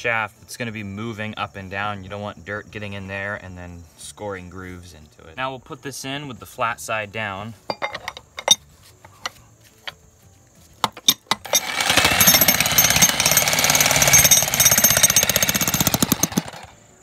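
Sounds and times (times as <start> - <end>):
jackhammer hammering rock: 11.4 - 16.8.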